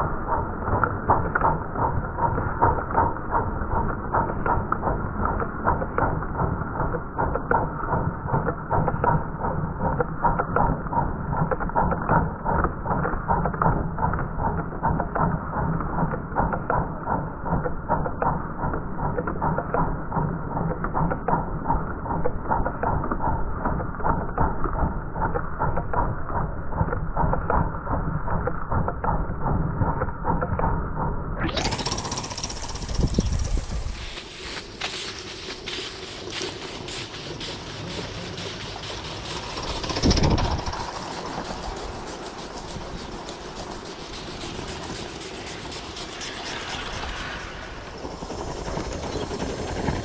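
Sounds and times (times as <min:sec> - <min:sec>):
model locomotive running: 0:31.5 - 0:50.0.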